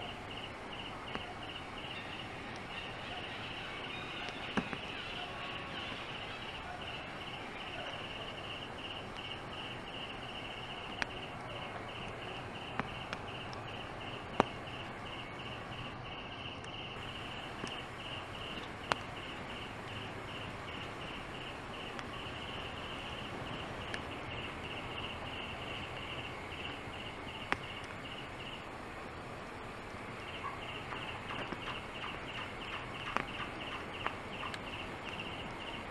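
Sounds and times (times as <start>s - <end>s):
insect chirping: 0.0s - 35.9s
sharp clicks and snaps: 8.4s - 25.1s, 30.8s - 35.8s.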